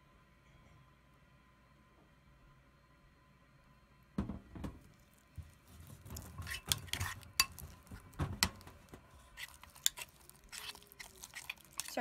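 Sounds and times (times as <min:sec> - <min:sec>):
metal spoon stirring slime in bowl: 0:05.6 - 0:12.0
spoon clinking against bowl: 0:06.5 - 0:07.8, 0:09.4 - 0:12.0.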